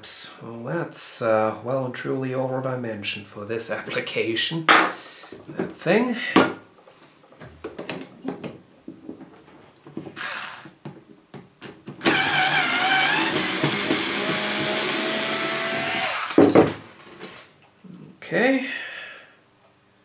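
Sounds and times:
cordless screwdriver motor whine: 12.0s - 16.4s.

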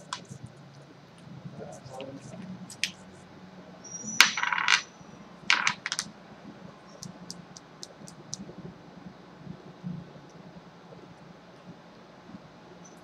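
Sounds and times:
metal tools clinking and clattering: 4.2s - 4.9s.

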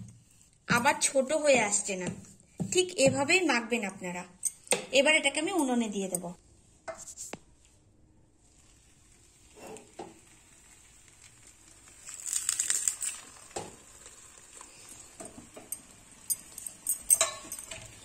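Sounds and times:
dough crackling in hot pan: 8.3s - 18.0s.

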